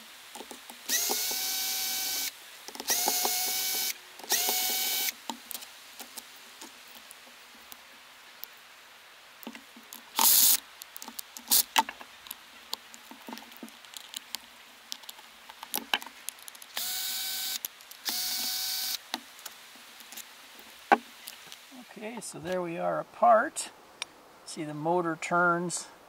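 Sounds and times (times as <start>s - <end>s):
cordless drill motor whirring: 0.9s - 5.1s, 10.2s - 10.6s, 16.7s - 19.0s
clicks and knocks of screws: 9.4s - 20.2s.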